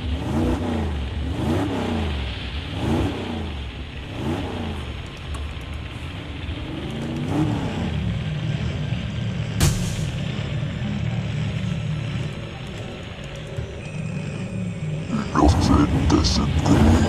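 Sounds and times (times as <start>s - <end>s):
motorcycle engine revving: 0.0s - 17.0s
sharp crack: 9.6s - 10.3s.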